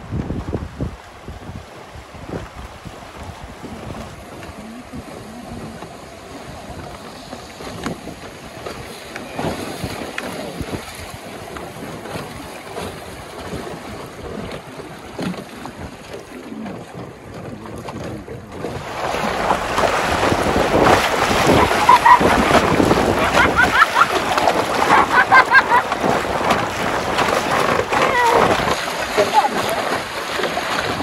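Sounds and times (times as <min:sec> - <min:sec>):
wind on microphone: 0:00.0 - 0:31.0
small splashes and knocks: 0:02.3 - 0:31.0
river water rushing: 0:18.6 - 0:31.0.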